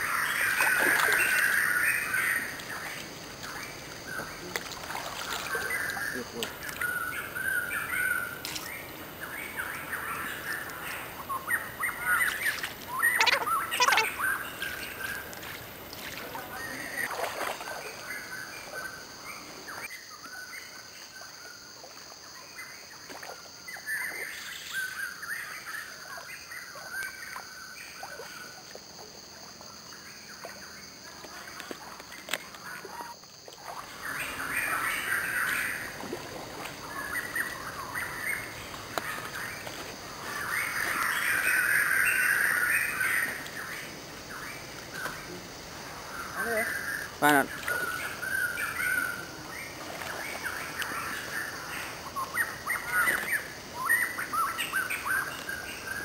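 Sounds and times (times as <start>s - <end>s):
creek water: 0.0s - 56.0s
birds chirping: 5.2s - 19.9s.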